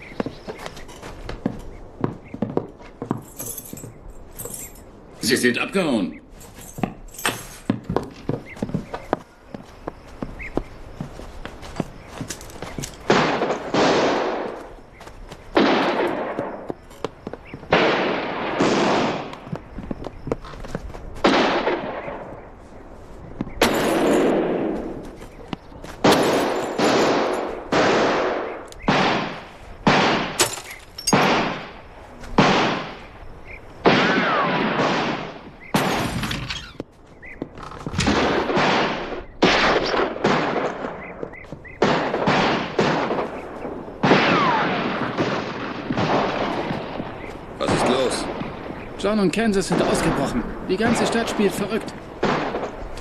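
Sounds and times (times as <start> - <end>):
echoing gunshots: 12.0 - 20.2, 21.1 - 22.6, 23.5 - 36.8, 38.0 - 53.0.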